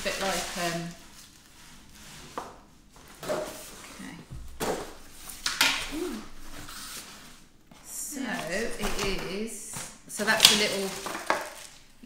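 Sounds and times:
packaging rustling: 0:08.3 - 0:12.0.

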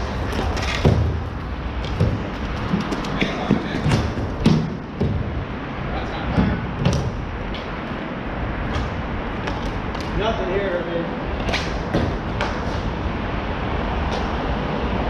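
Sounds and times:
ball hitting rink boards: 0:00.0 - 0:05.5, 0:08.7 - 0:10.2
distant voices: 0:00.0 - 0:15.0
steady background noise: 0:00.0 - 0:15.0.

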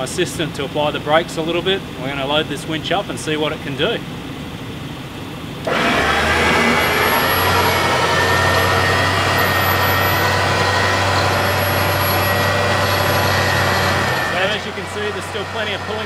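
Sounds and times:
electric winch motor whining: 0:05.6 - 0:16.0.

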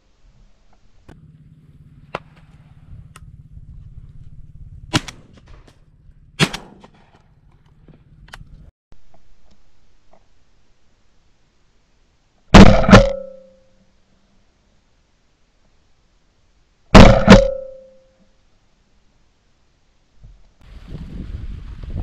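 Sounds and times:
low steady hum: 0:00.0 - 0:20.8
shotgun shots: 0:04.9 - 0:05.7, 0:06.4 - 0:07.2, 0:12.5 - 0:13.5, 0:17.0 - 0:17.9.

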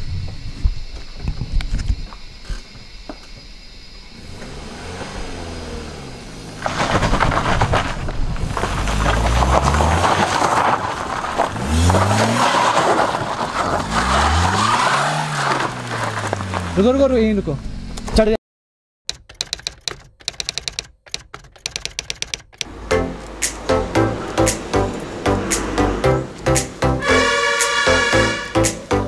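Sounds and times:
road and wind noise: 0:00.0 - 0:18.3, 0:19.1 - 0:29.0
vehicle engine accelerating: 0:04.1 - 0:18.1, 0:22.7 - 0:29.0.

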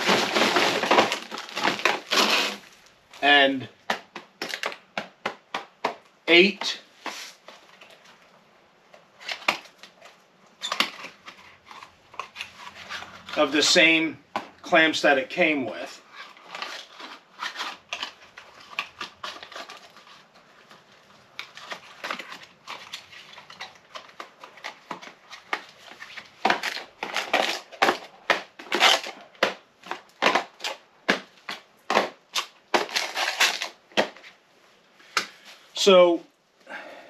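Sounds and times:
packaging crinkling and rustling: 0:00.0 - 0:03.2, 0:04.3 - 0:05.0, 0:09.0 - 0:13.7, 0:15.9 - 0:34.4.

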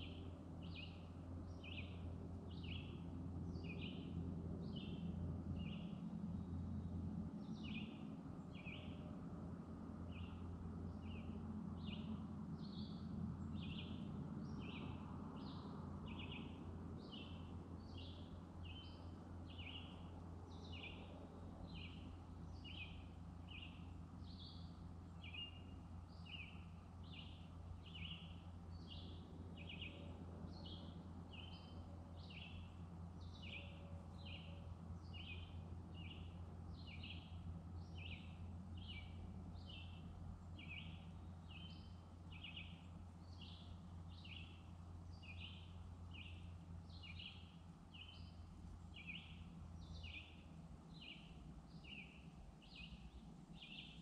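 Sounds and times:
low steady hum: 0:00.0 - 0:54.0
birds chirping: 0:30.6 - 0:54.0.

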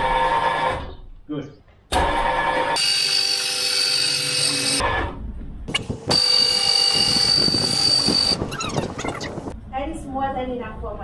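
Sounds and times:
electric lift motor whining: 0:01.9 - 0:04.9, 0:05.8 - 0:08.4.

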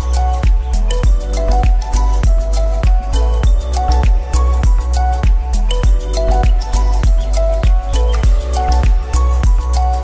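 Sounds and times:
background music with heavy bass: 0:00.0 - 0:10.0.

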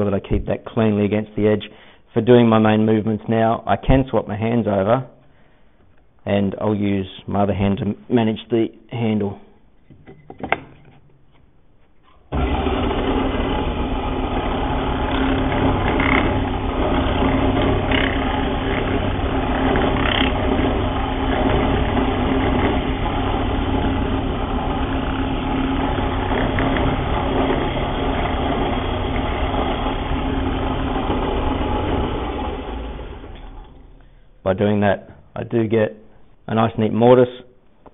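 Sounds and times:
drill press motor humming: 0:12.2 - 0:34.4
drill bit boring wood: 0:12.3 - 0:34.0.

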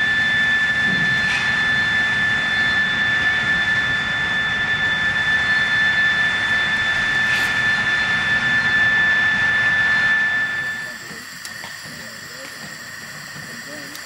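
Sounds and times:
high whistling tone: 0:00.0 - 0:11.0
steam hissing: 0:00.0 - 0:14.0.

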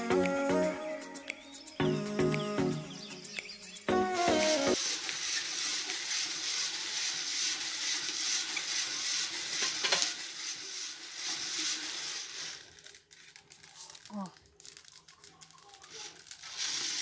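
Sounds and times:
coffee beans tumbling in metal drum: 0:04.8 - 0:17.0.

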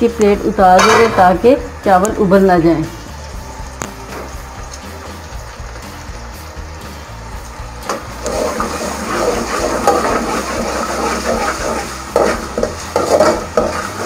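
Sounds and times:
onions sizzling in hot oil: 0:00.0 - 0:14.0
metal spoon scraping pan: 0:08.3 - 0:14.0.

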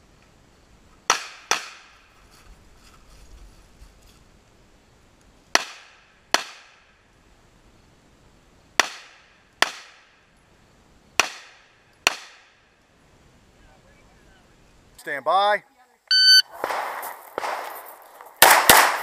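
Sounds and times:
pistol shots: 0:16.6 - 0:17.7, 0:18.4 - 0:19.0.

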